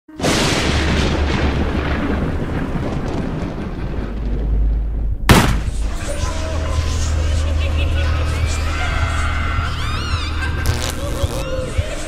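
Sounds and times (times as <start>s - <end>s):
thunder-like crash: 0.2s - 6.0s.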